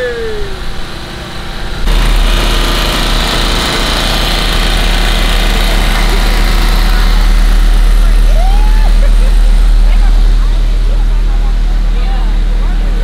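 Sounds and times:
small engine running: 0.0s - 13.0s.

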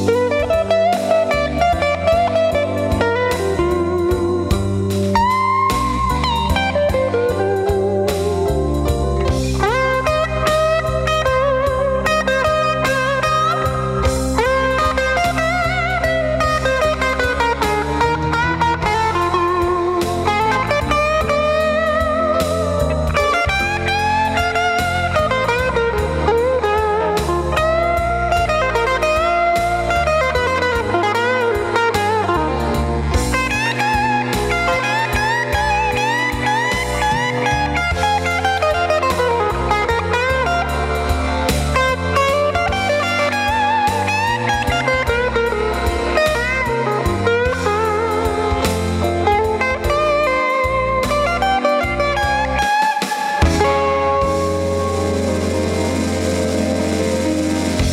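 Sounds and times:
electric blues lead guitar: 0.0s - 57.9s.

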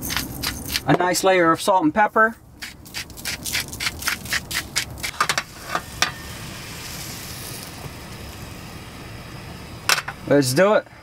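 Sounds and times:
butter sizzling in frying pan: 5.4s - 8.7s.

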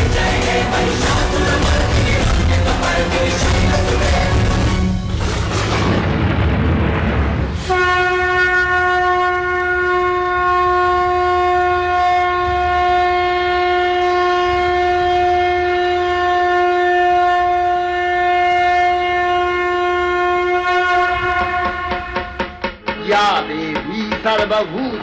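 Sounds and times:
conch shell blown: 7.6s - 22.8s.

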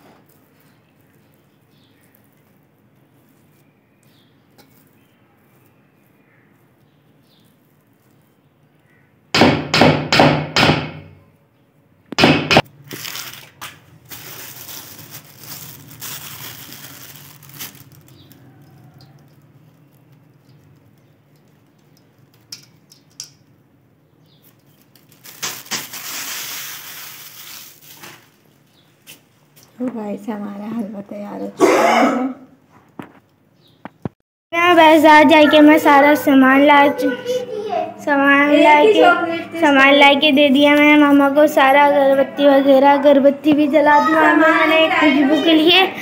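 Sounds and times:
rustling of sprinkled food: 0.0s - 9.0s, 12.7s - 22.9s, 24.4s - 29.8s.

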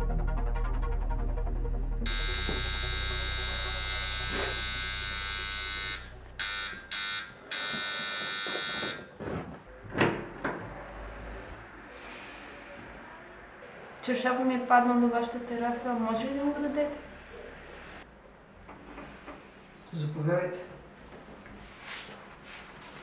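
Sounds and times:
electric door buzzer ringing: 2.1s - 9.2s.

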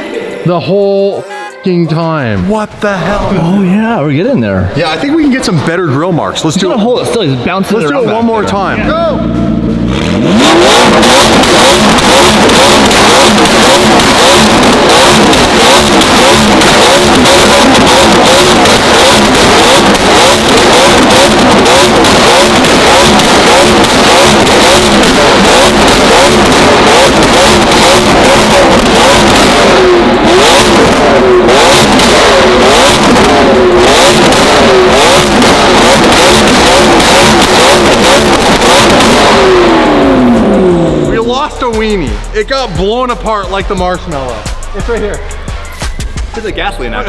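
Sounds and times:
exhaust crackling: 2.2s - 45.5s
car engine revving hard: 7.7s - 42.3s.

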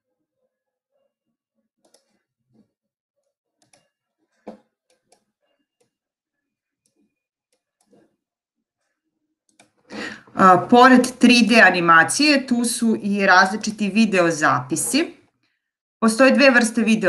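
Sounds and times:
computer mouse clicks: 1.8s - 2.2s, 3.6s - 3.9s, 9.5s - 9.8s.

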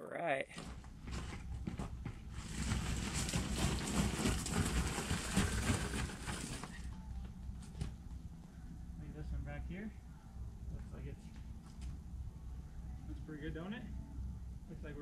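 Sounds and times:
footsteps on gravel: 0.6s - 6.7s.

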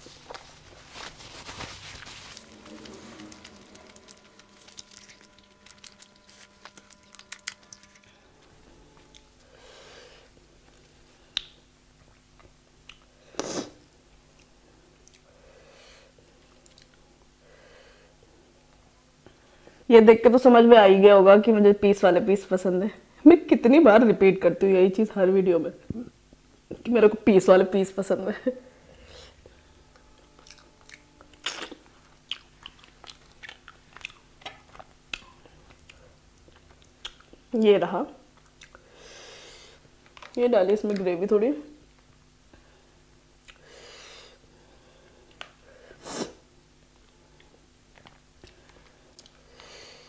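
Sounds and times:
bread tearing: 0.0s - 8.2s
soft chewing: 0.0s - 8.2s, 10.3s - 13.2s, 14.1s - 15.4s, 16.3s - 17.0s, 29.9s - 37.5s, 38.3s - 39.0s, 47.0s - 49.4s.

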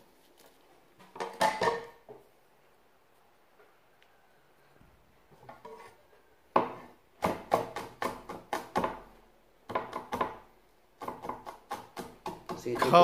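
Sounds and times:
cleaver chopping on wooden board: 6.6s - 9.0s, 11.0s - 13.0s.

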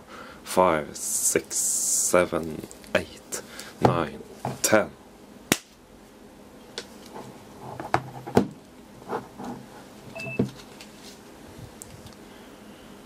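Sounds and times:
short electronic beep: 10.2s - 10.4s.

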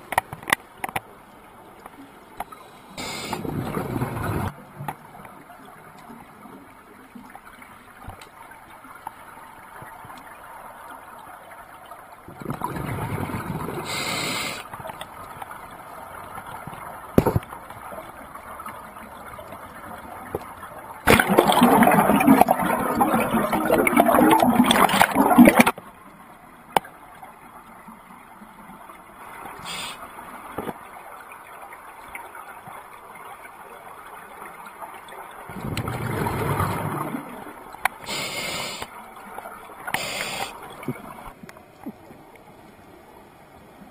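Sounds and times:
faint steady hiss: 0.0s - 21.2s, 21.9s - 43.9s
underwater bubbles rushing: 3.0s - 5.3s, 12.3s - 14.1s, 16.5s - 25.8s, 35.5s - 38.2s.

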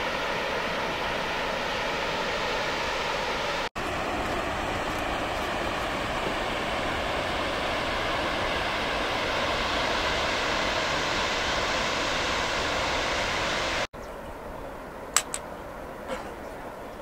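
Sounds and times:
sharp clicks: 15.2s - 15.5s.

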